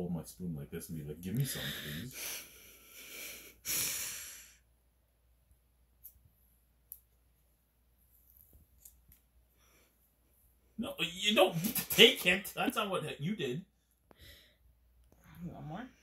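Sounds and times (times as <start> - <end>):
person breathing out heavily: 1.4 - 4.6.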